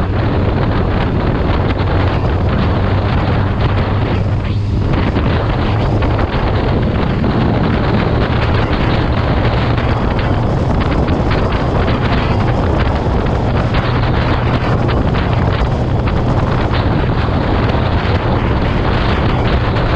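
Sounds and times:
low vehicle engine drone: 0:00.0 - 0:19.9
wind rushing over microphone: 0:00.0 - 0:19.9.

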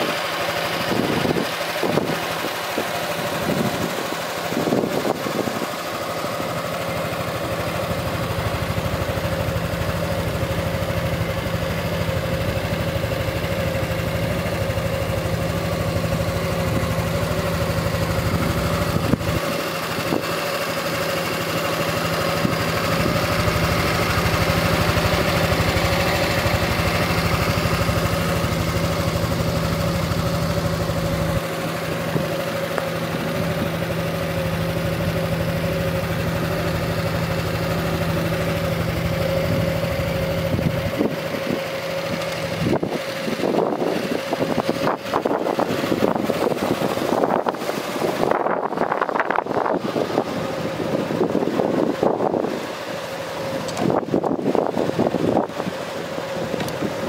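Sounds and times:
scooter engine idling: 0:00.0 - 0:57.0.

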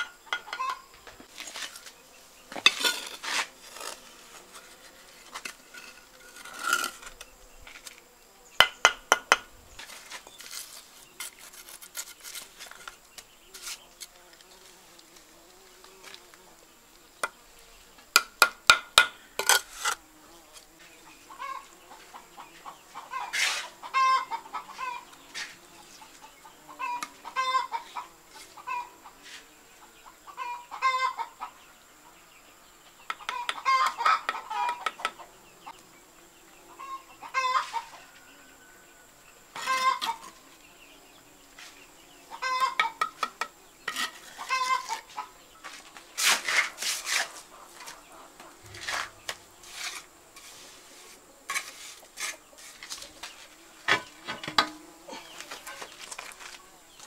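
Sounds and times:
trowel tapping bricks: 0:00.0 - 0:00.8, 0:08.6 - 0:09.5, 0:18.1 - 0:20.0
chickens clucking: 0:00.0 - 0:01.3, 0:21.3 - 0:29.2, 0:29.8 - 0:32.2, 0:33.1 - 0:35.8, 0:36.7 - 0:38.3, 0:39.6 - 0:40.4, 0:42.2 - 0:45.8, 0:46.6 - 0:49.4, 0:51.7 - 0:56.6.

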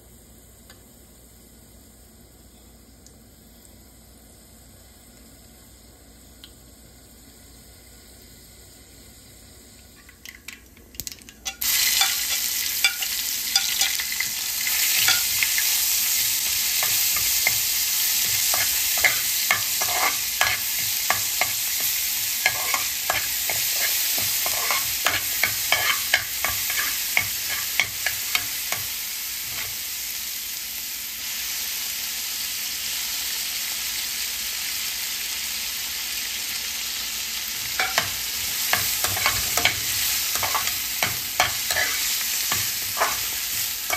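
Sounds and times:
oil sizzling in a frying pan: 0:00.0 - 0:43.9
spatula scraping and clicking on pan: 0:11.4 - 0:15.7, 0:16.8 - 0:29.8, 0:37.8 - 0:43.9.

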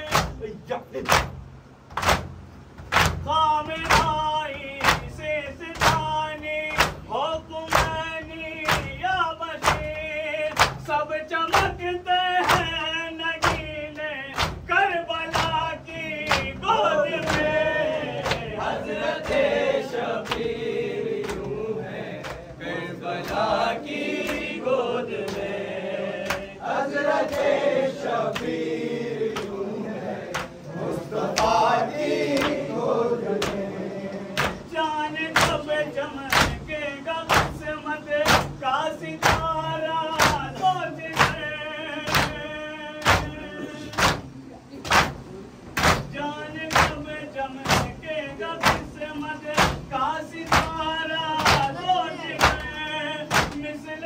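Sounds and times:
hands slapping chests: 0:01.0 - 0:03.2, 0:10.5 - 0:10.9, 0:12.4 - 0:14.7, 0:16.3 - 0:16.6, 0:17.2 - 0:18.6, 0:20.2 - 0:20.5, 0:21.2 - 0:21.6, 0:26.2 - 0:26.5, 0:30.3 - 0:30.6, 0:43.0 - 0:45.2, 0:51.4 - 0:51.8, 0:52.4 - 0:53.7
group chanting: 0:14.3 - 0:44.3, 0:45.8 - 0:54.0.

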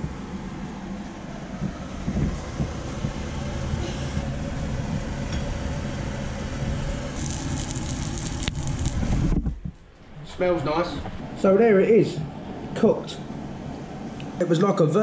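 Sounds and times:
low steady rumble: 0:00.0 - 0:14.5
oil sizzling in frying pan: 0:07.2 - 0:09.1.

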